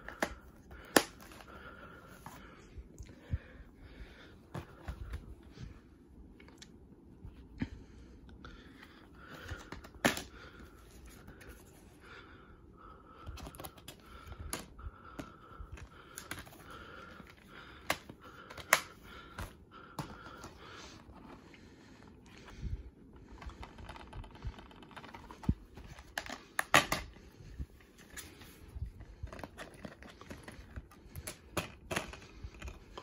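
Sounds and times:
plastic cases clicking and tapping: 0:00.0 - 0:01.5, 0:09.3 - 0:10.3, 0:13.3 - 0:16.6, 0:17.2 - 0:20.6, 0:23.6 - 0:27.2, 0:29.3 - 0:33.0
faint high hum: 0:00.0 - 0:33.0.

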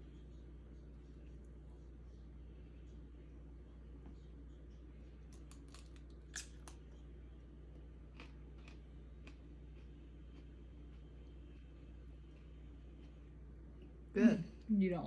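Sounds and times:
steady low hum: 0:00.0 - 0:15.0
pepper crunching while chewed: 0:05.3 - 0:06.8, 0:08.1 - 0:11.1.

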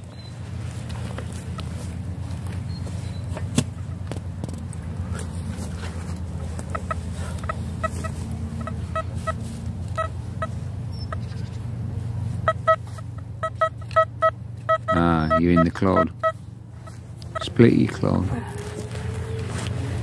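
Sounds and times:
steady low rumble: 0:00.0 - 0:20.0
metal detector beeping: 0:06.7 - 0:11.3, 0:12.4 - 0:18.0.

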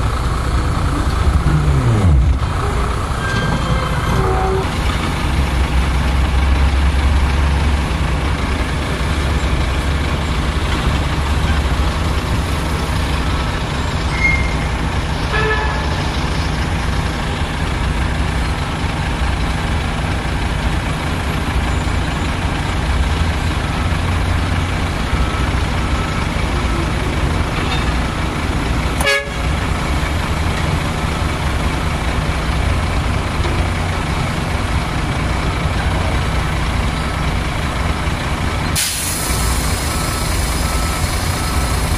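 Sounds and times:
heavy diesel engines rumbling: 0:00.0 - 0:41.9.

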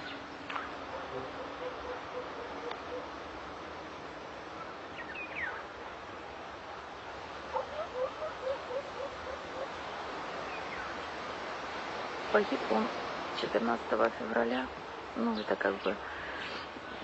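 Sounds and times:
outdoor background hiss: 0:00.0 - 0:17.0
animal chirping calls: 0:07.6 - 0:09.7.

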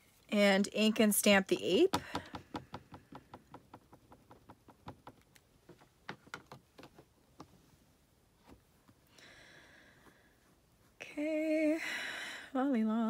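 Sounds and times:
rubber stamp tapping ink pad: 0:01.9 - 0:05.3.

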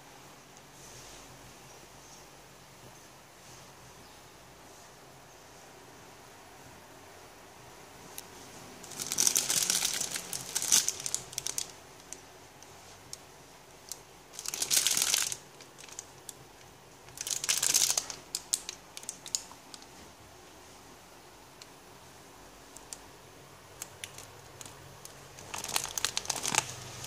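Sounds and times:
plastic bags crinkling: 0:08.8 - 0:20.0, 0:23.7 - 0:27.0.

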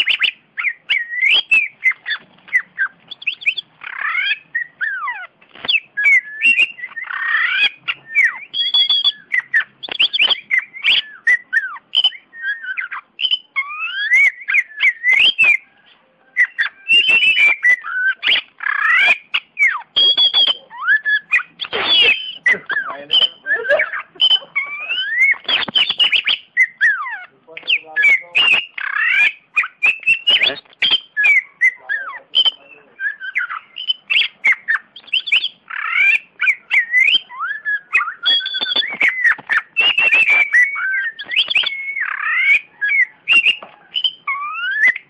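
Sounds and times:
bird singing whistled notes: 0:00.0 - 0:45.0
bird sharp clicks: 0:16.6 - 0:23.3, 0:25.2 - 0:26.4, 0:27.5 - 0:31.4, 0:38.0 - 0:44.2.

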